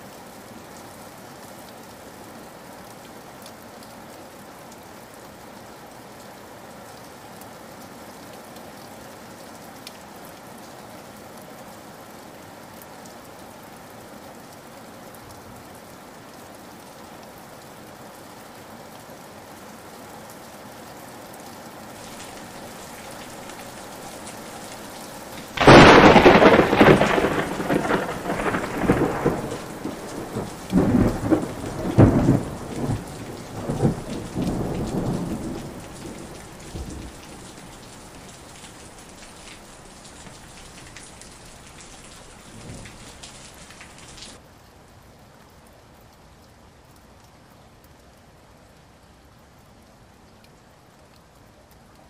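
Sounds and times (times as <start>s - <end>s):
heavy rain falling: 0.0s - 45.0s
loud rolling thunder: 22.0s - 38.6s, 42.4s - 44.3s.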